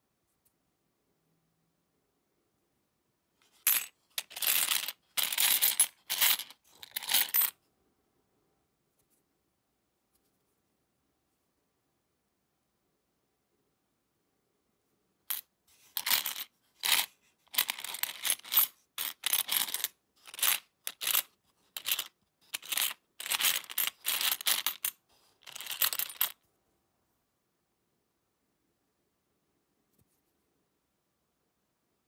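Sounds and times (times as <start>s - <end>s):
coins clinking in a box: 3.5s - 7.5s, 15.3s - 26.4s.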